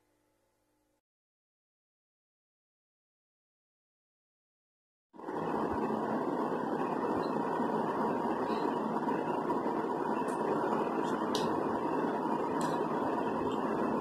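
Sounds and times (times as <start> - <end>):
steady background noise: 5.2 - 14.0.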